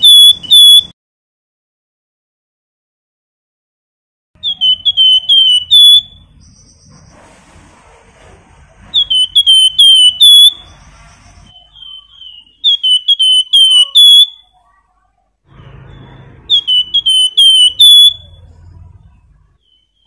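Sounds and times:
bird singing whistled notes: 0.0s - 0.9s, 4.4s - 7.2s, 8.9s - 14.6s, 15.6s - 18.6s, 19.6s - 20.0s.

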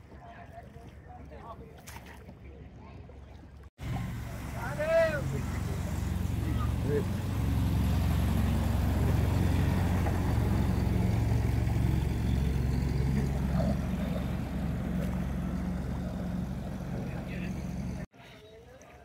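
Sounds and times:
churning water: 0.0s - 19.0s
boat engine droning: 3.4s - 18.1s.

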